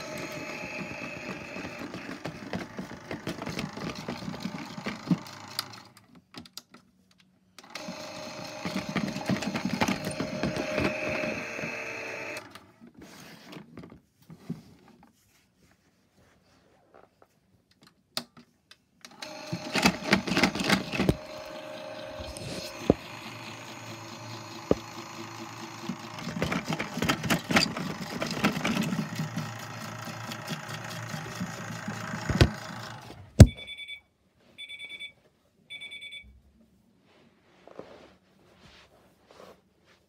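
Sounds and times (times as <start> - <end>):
short electronic beeps: 33.5 - 36.3.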